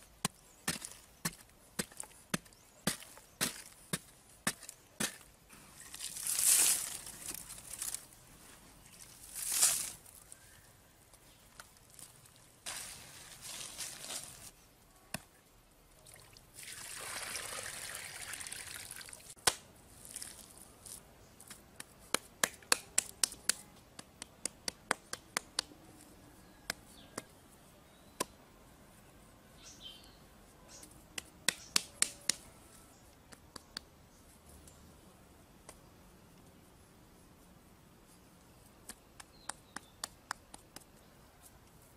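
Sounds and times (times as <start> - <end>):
soil pouring with a hiss: 16.6 - 19.4.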